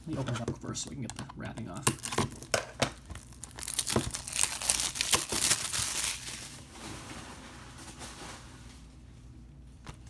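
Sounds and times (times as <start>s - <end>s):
plastic shrink-wrap crinkling: 1.8s - 8.9s.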